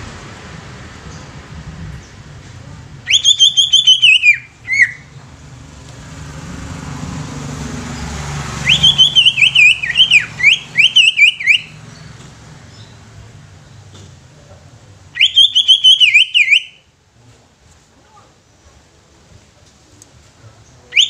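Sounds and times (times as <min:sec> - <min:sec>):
bird singing rapid whistled notes: 0:03.1 - 0:05.2, 0:08.6 - 0:13.0, 0:15.2 - 0:16.8.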